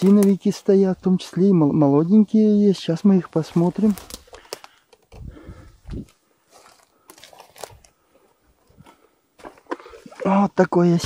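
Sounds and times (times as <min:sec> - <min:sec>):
footsteps crunching dry leaves: 0:00.0 - 0:00.8, 0:02.9 - 0:04.6, 0:05.8 - 0:08.4.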